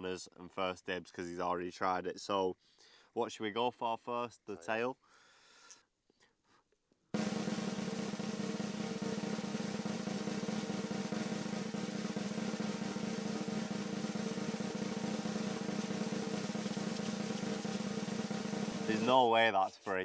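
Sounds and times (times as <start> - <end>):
snare drum roll: 7.2 - 20.0.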